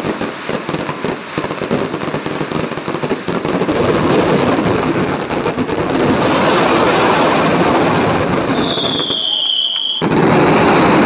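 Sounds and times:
fireworks shell bursts and crackle: 0.0s - 11.0s
high firework whistle: 6.0s - 11.0s.

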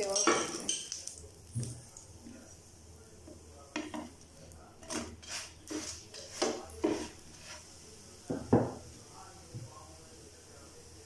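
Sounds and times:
utensils scraping and tapping a pan: 3.2s - 7.7s.

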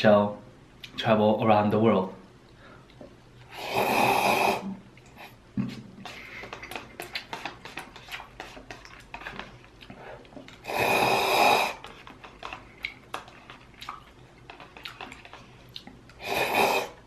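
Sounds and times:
noodles slurped: 3.4s - 5.4s, 6.0s - 17.0s
chewing with wet mouth clicks: 6.0s - 10.6s, 11.8s - 16.2s.

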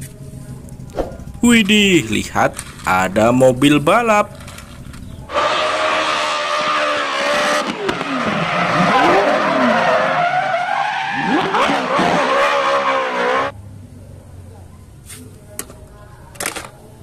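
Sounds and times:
tyres squealing: 5.0s - 13.5s
car engine revving hard: 5.3s - 13.5s.

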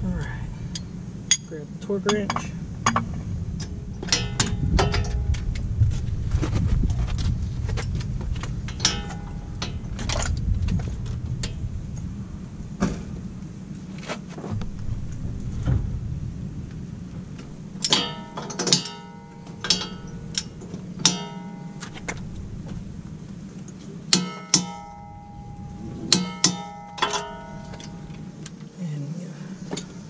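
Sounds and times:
low rumble: 0.0s - 30.0s
wrench clinking on wheel hub: 0.7s - 5.6s, 8.7s - 11.6s, 17.8s - 22.4s, 23.7s - 28.6s.

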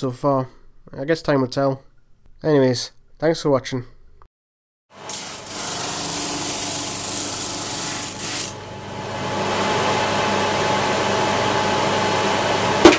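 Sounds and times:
machine hum: 8.6s - 12.9s.

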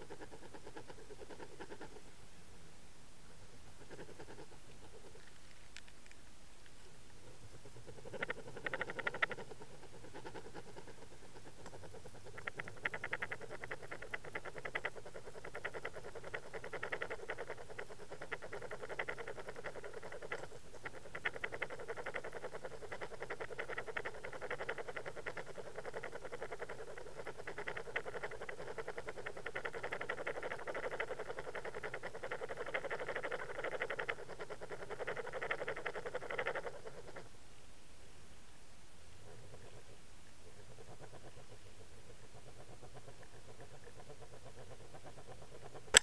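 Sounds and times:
underwater rapid clicking and rattling: 7.9s - 37.2s, 42.4s - 46.0s.

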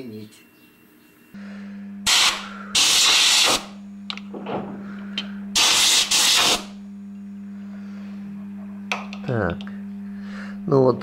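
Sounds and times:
low electrical hum: 0.0s - 11.0s
compressed air blow gun hissing: 2.1s - 3.8s, 5.6s - 6.8s.

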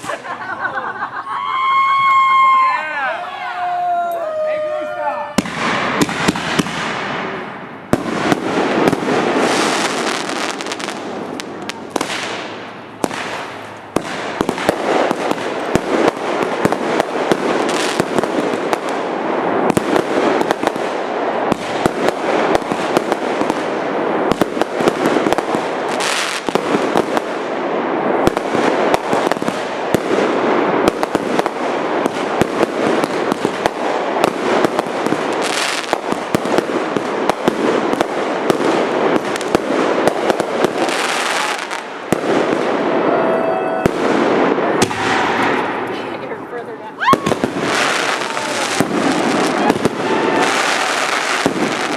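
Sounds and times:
fireworks bangs and crackling: 0.0s - 51.9s.

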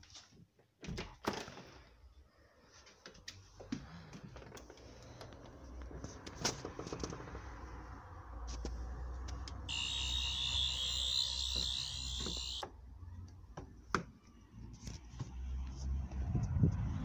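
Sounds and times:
door opening: 9.7s - 12.6s.

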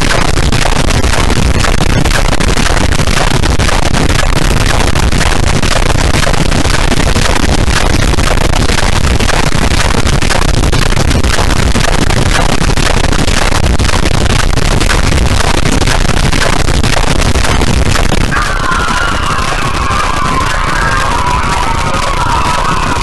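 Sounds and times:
distorted crackling static: 0.0s - 23.0s.

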